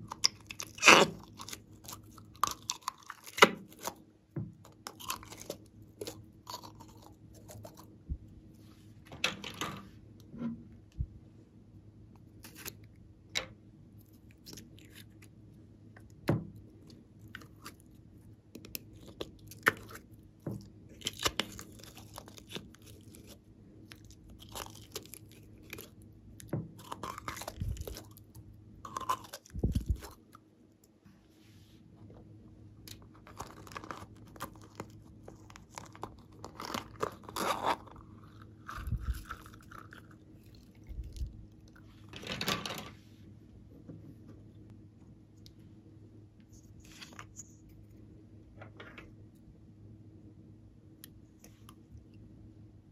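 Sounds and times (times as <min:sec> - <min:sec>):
slime squelching: 0:00.0 - 0:08.3, 0:16.1 - 0:30.4, 0:32.8 - 0:41.9.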